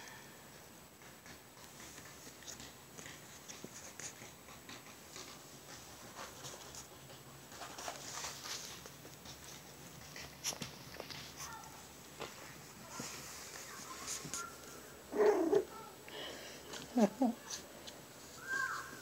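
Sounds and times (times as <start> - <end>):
puppies rustling on rugs: 0.5 - 16.0, 16.6 - 19.0
scratchy paw clicks: 1.0 - 12.5.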